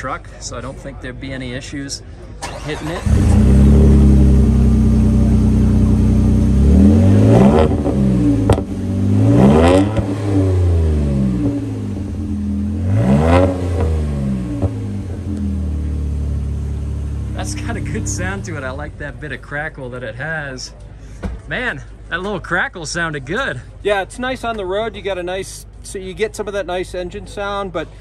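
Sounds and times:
exhaust crackle: 0:02.4 - 0:19.6
truck engine idling and revving: 0:02.4 - 0:20.4.

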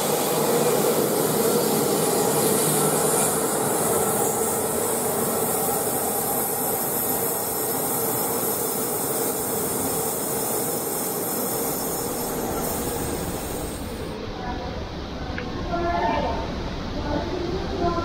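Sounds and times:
electric locomotive moving away: 0:00.0 - 0:14.2.

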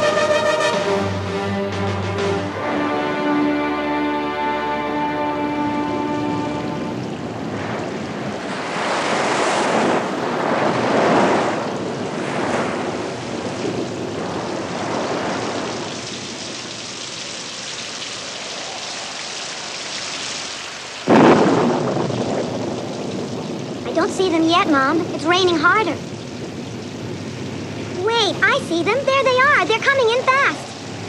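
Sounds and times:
wind: 0:00.0 - 0:31.0
crashing surf: 0:04.9 - 0:31.0
sudden loud crash: 0:21.1 - 0:23.5.

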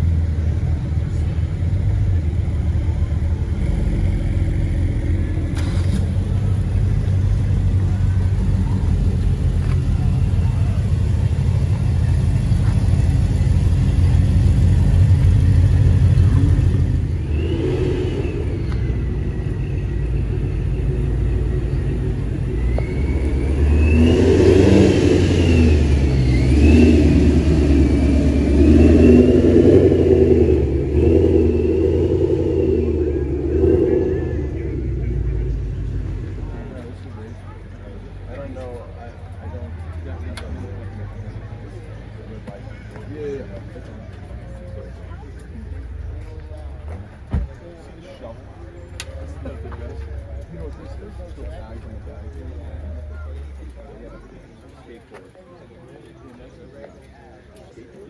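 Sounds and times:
car engine revving: 0:00.0 - 0:38.6
car engines rumbling: 0:00.0 - 0:58.0.

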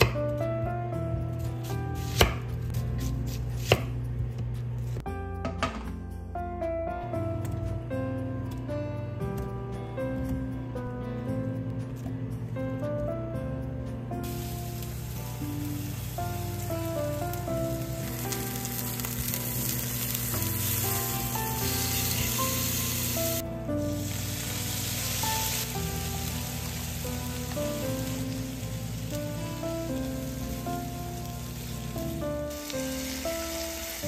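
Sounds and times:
soft background music: 0:00.0 - 0:34.0
onions sizzling in oil: 0:14.2 - 0:34.0.

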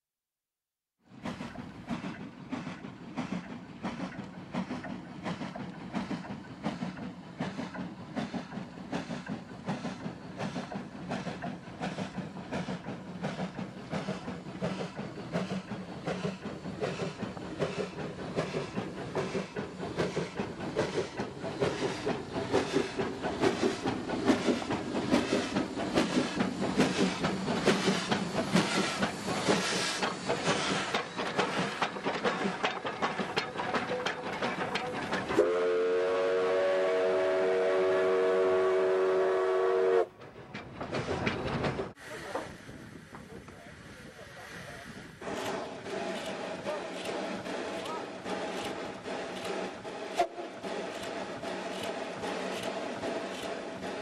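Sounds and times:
steam locomotive exhaust chuffing: 0:01.1 - 0:54.0
steam whistle chord: 0:35.4 - 0:40.1.

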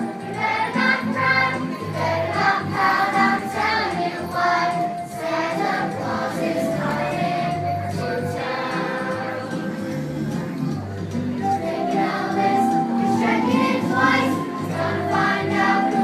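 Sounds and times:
children singing together: 0:00.0 - 0:10.0, 0:11.5 - 0:16.0
backing music: 0:00.0 - 0:16.0.

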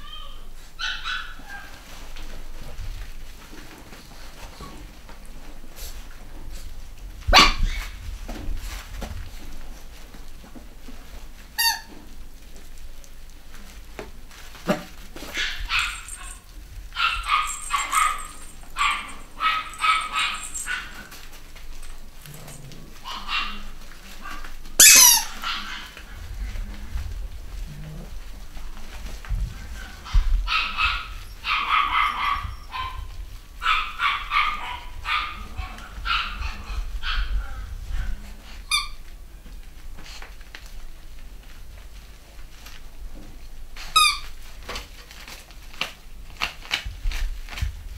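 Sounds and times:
puppies yapping: 0:00.0 - 0:02.0, 0:07.3 - 0:08.0, 0:14.7 - 0:21.9, 0:22.9 - 0:26.2, 0:29.7 - 0:37.6
sharp high squeak: 0:24.8 - 0:25.3.

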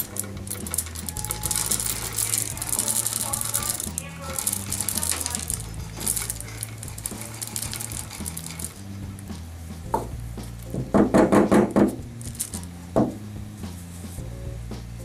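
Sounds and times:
pellets pouring into glass: 0:00.0 - 0:09.0, 0:12.2 - 0:12.7
cup knocking on a table: 0:09.9 - 0:12.0.

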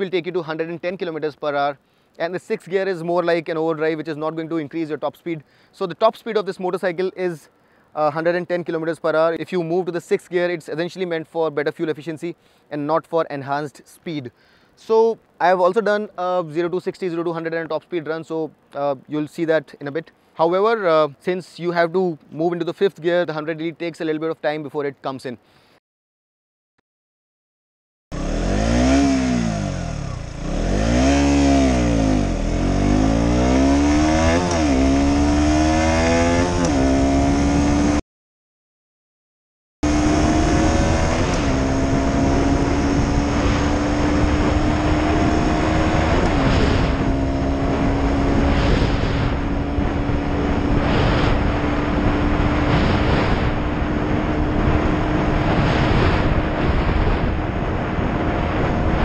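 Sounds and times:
motorcycle engine accelerating: 0:28.1 - 0:38.0, 0:39.8 - 0:59.0.

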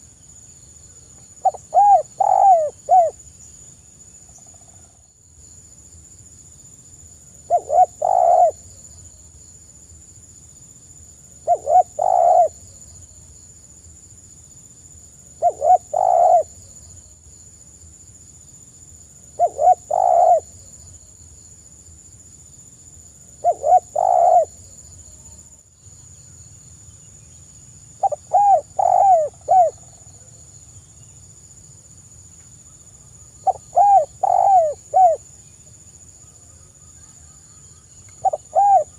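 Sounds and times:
dove cooing: 0:01.4 - 0:03.2, 0:07.5 - 0:08.6, 0:11.4 - 0:12.6, 0:15.4 - 0:16.6, 0:19.4 - 0:20.6, 0:23.4 - 0:24.6, 0:28.0 - 0:30.3, 0:33.4 - 0:35.2, 0:38.2 - 0:38.9.

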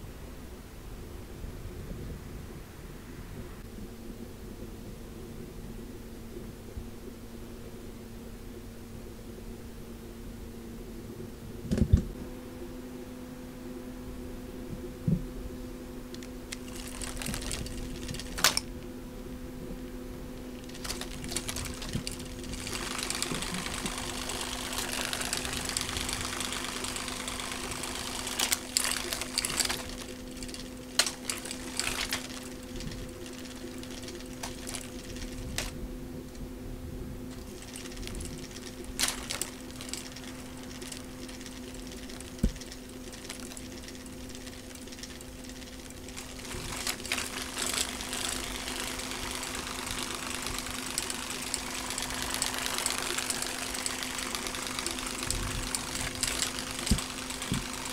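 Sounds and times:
sharp clicks and rattles: 0:16.1 - 0:18.8, 0:20.4 - 0:35.8, 0:37.3 - 0:57.9
small motor whirring: 0:16.2 - 0:18.7, 0:20.5 - 0:35.8, 0:37.3 - 0:57.9.

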